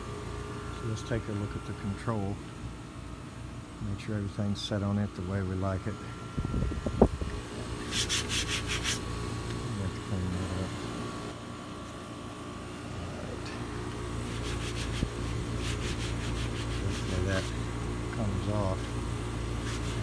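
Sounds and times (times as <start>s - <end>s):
air conditioning hum: 0.0s - 20.0s
quick rubbing strokes: 7.8s - 9.1s, 14.2s - 17.6s, 19.6s - 20.0s.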